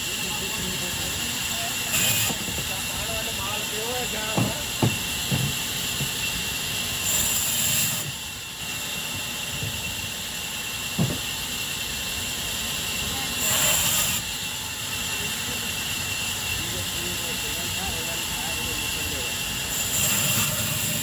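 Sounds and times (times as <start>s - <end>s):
band saw whining: 0.0s - 21.0s
saw blade cutting log: 0.0s - 21.0s
knock: 4.4s - 5.6s, 11.0s - 11.2s.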